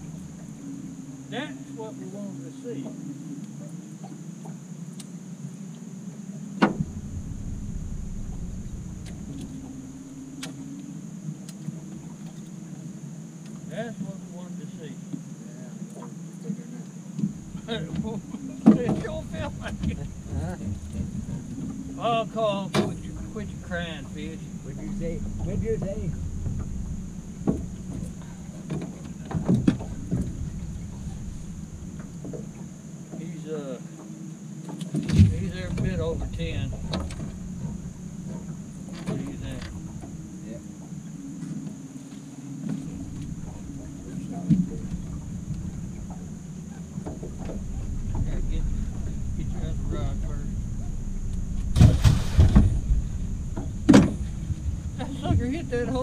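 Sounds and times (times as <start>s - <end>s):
low rumbling: 0.0s - 3.4s, 6.2s - 13.2s, 17.0s - 33.4s, 34.2s - 56.0s
steady low hum: 0.0s - 56.0s
knocks on aluminium boat: 6.6s - 10.5s, 51.6s - 54.6s.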